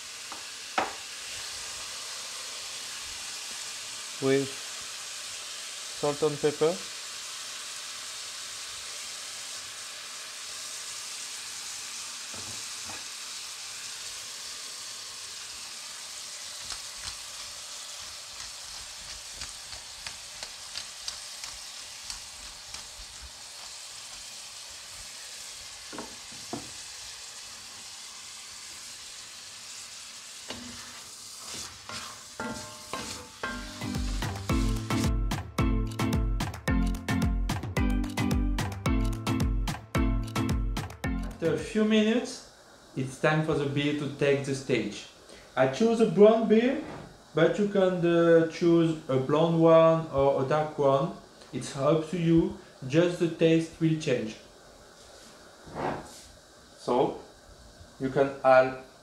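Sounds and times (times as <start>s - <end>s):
beef sizzling in butter: 0.0s - 36.6s
rhythmic background music: 33.4s - 41.4s.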